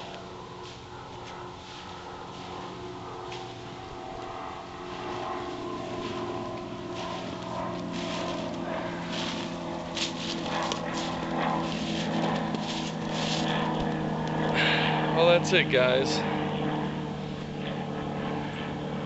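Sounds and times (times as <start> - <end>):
distant engine drone: 0.0 - 19.0
footsteps crunching through grass and snow: 0.6 - 14.6.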